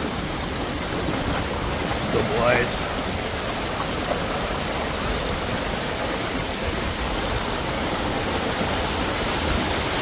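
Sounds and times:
small waterfalls: 0.0 - 10.0
water rushing down a canyon: 0.0 - 10.0.

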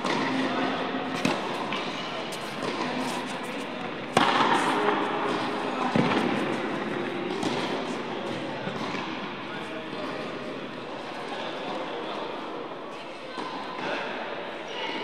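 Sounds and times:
tennis ball hit by rackets: 0.0 - 8.0.

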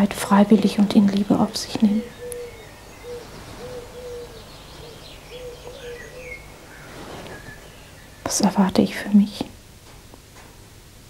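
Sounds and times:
birds calling low notes: 0.0 - 9.8
high bird chirps: 2.0 - 8.5.

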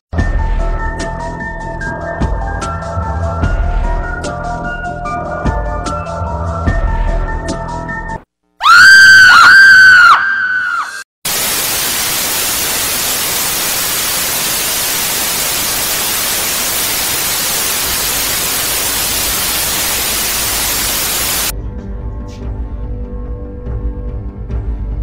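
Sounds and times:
high screeching cries: 8.6 - 11.0
loud static hiss: 11.3 - 21.5.

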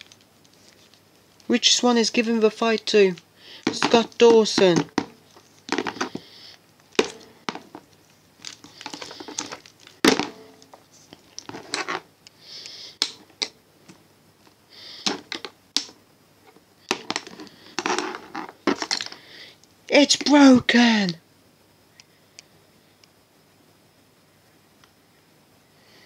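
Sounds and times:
plastic figures clicking and knocking: 2.8 - 6.2, 7.0 - 12.0, 15.0 - 16.0, 16.9 - 19.2.

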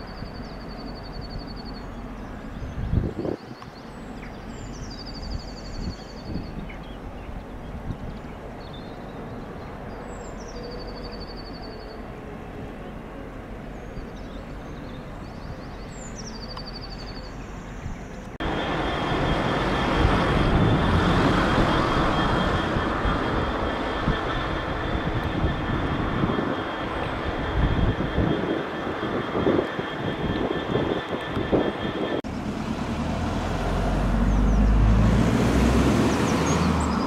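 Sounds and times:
birds chirping: 0.0 - 18.7, 34.0 - 35.0
steady high whine: 0.0 - 35.1
steady low rumble: 17.8 - 36.1
train running loudly: 18.4 - 37.0.

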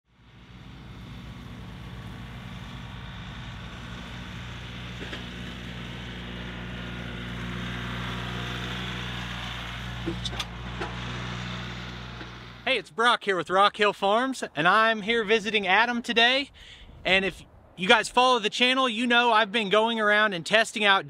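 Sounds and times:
farm machinery engine running: 0.1 - 12.7.

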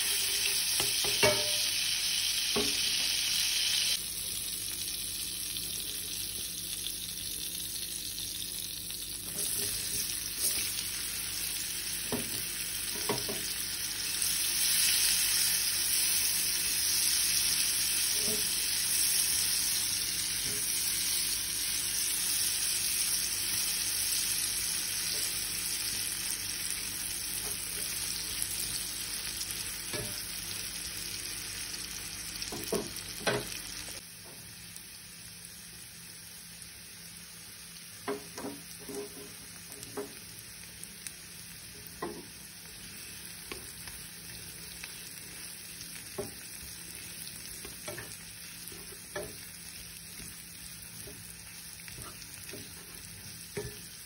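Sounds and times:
utensil scraping a pan: 0.0 - 1.6
onions sizzling in a pan: 0.0 - 54.0.

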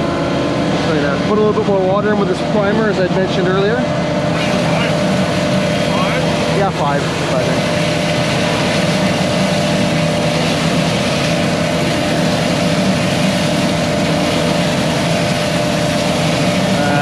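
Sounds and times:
heavy diesel engines running: 0.0 - 17.0.

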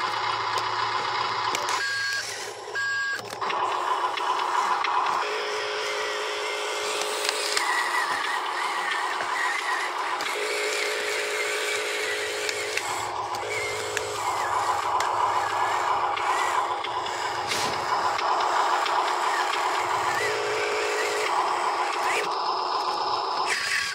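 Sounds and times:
toy truck electric motor whine: 0.0 - 23.9.

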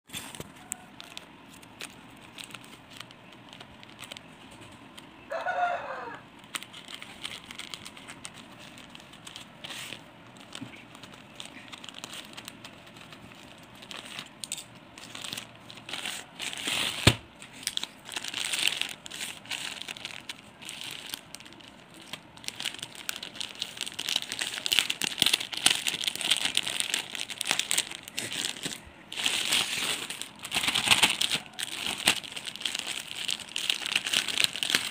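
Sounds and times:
plastic mailer crinkling: 0.1 - 5.7, 6.3 - 34.9
chicken calling: 5.2 - 6.3
scissors cutting plastic: 6.4 - 20.8, 21.9 - 34.9.

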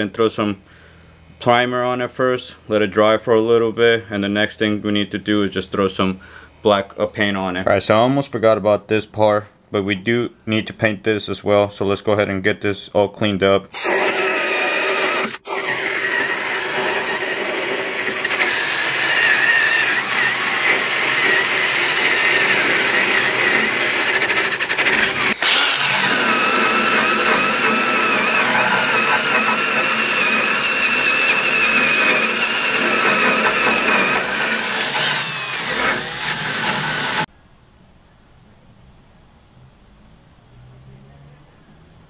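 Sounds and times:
drill wire brush scrubbing metal: 13.8 - 37.3.

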